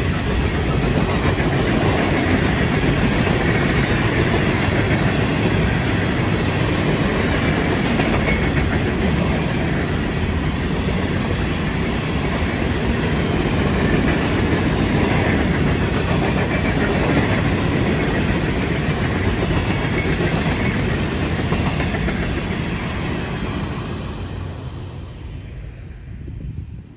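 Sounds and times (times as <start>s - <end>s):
train wheels clattering on rails: 0.0s - 24.6s.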